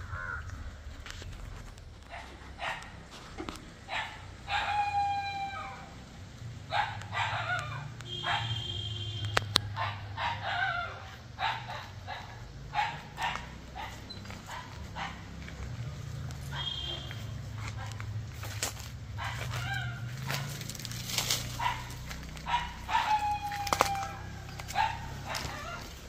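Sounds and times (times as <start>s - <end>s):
dog barking: 2.1s - 3.0s, 3.9s - 4.9s, 6.7s - 8.7s, 9.6s - 15.4s, 16.4s - 18.2s, 19.1s - 26.0s
rooster crowing: 4.5s - 6.0s, 22.5s - 25.9s.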